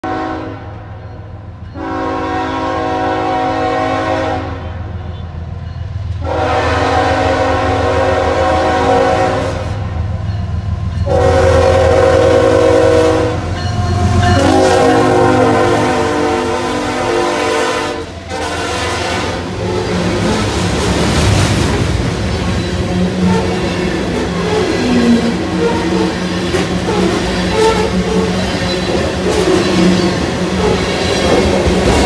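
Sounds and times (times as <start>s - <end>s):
locomotive air horn blasts: 0.0s - 0.8s, 1.8s - 5.3s, 6.2s - 9.9s, 11.0s - 20.4s
train rumbling: 0.0s - 32.0s.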